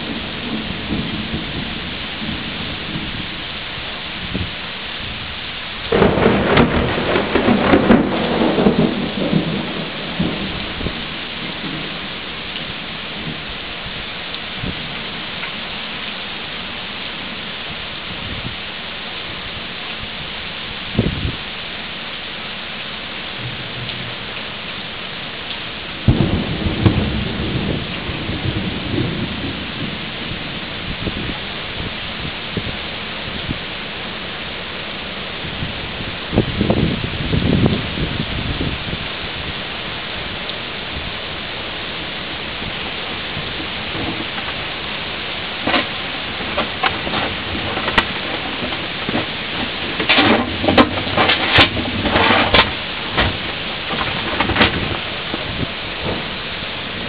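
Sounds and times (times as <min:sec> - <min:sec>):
loud thunder clap rumbling: 0:00.0 - 0:03.3, 0:05.9 - 0:12.1, 0:26.0 - 0:31.4, 0:45.6 - 0:57.0
heavy rain: 0:00.0 - 0:57.0.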